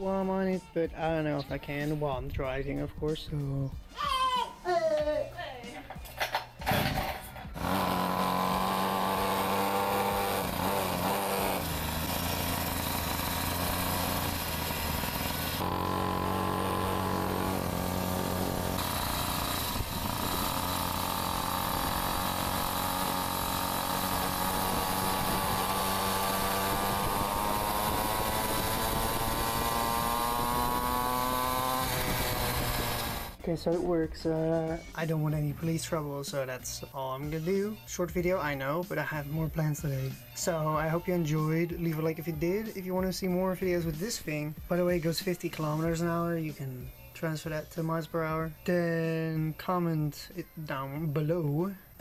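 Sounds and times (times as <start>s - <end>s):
pocket bike engine running: 6.6s - 33.4s.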